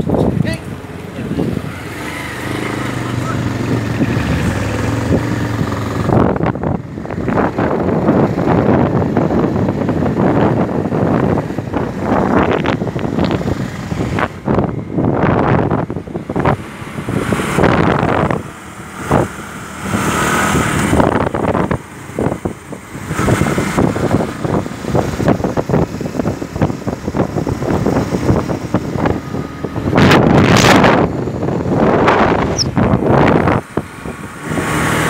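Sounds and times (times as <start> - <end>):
motorcycles running: 0.0 - 35.0
wind buffeting microphone: 0.0 - 35.0.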